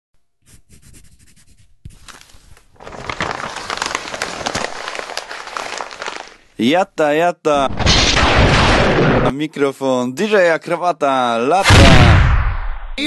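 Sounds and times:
paper crinkling and crackling: 1.9 - 6.6.

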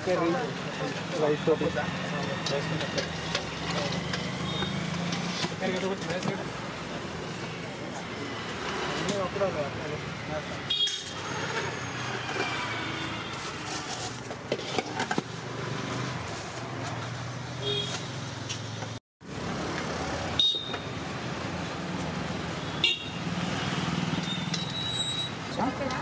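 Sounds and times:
street traffic: 0.0 - 26.0
car horn toots: 22.8 - 23.2.

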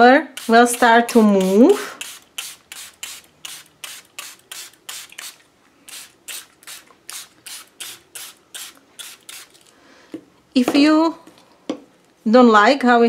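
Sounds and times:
spray bottle hissing: 0.3 - 9.7.

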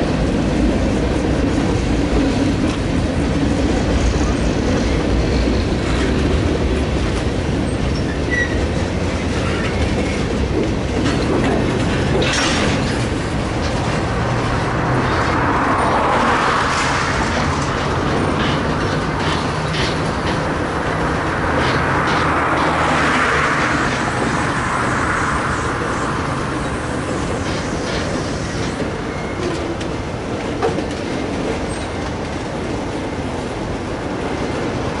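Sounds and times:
steel wheels rumbling on rail: 0.0 - 35.0
wheels clicking over rail joints: 4.9 - 14.9, 16.7 - 24.6, 26.5 - 33.0.

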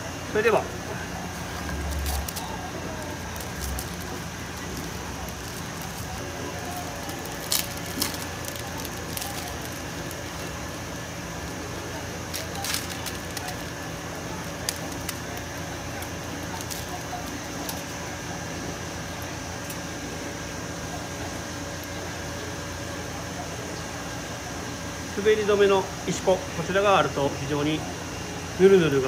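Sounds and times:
steady background hum: 0.0 - 29.0
plastic package crinkling and snapping: 1.3 - 10.6, 12.3 - 18.0.

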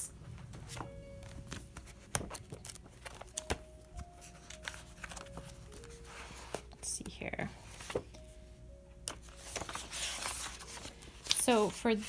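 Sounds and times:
pages flipping: 0.4 - 6.8, 7.6 - 8.2, 9.1 - 11.8.

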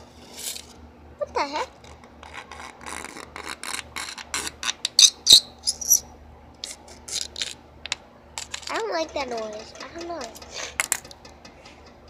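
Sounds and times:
short squeak: 5.0 - 6.0.

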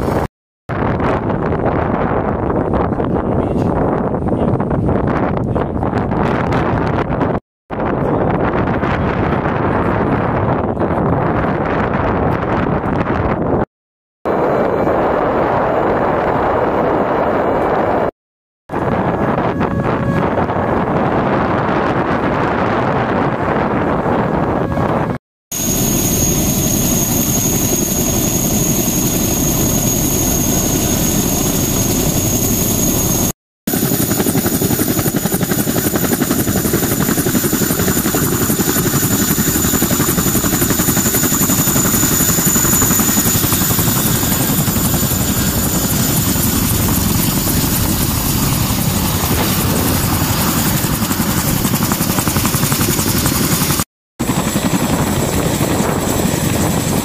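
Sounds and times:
helicopter rotor and engine: 0.0 - 13.6, 14.3 - 18.1, 18.7 - 57.0
high whine: 18.7 - 22.2, 24.2 - 33.3.

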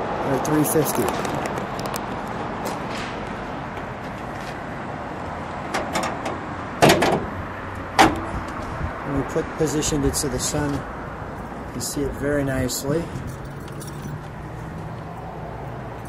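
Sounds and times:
metal hood latch clunks and clicks: 5.7 - 8.6.

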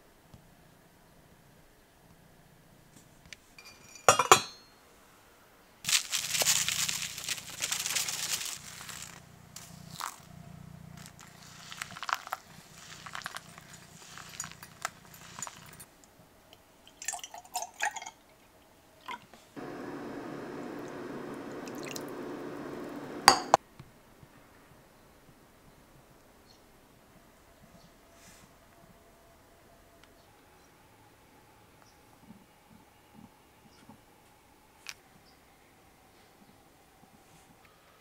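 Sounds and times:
water pouring onto coffee grounds: 11.0 - 15.8, 19.6 - 23.5.

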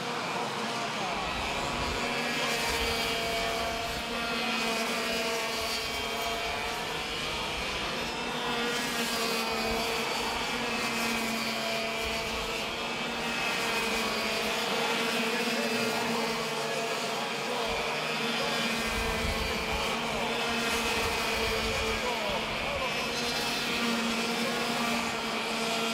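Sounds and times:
racing kart engines buzzing: 0.0 - 25.9.

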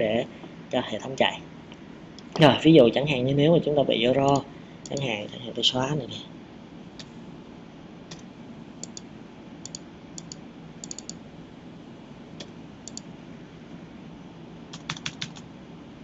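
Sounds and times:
faint low hum: 0.0 - 16.0
mouse and keyboard clicks: 9.6 - 11.2, 14.7 - 15.4.

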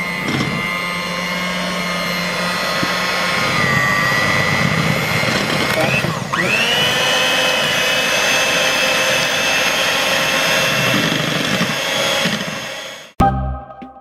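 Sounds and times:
electric hand mixer whirring: 0.0 - 13.2
music: 13.2 - 14.0.

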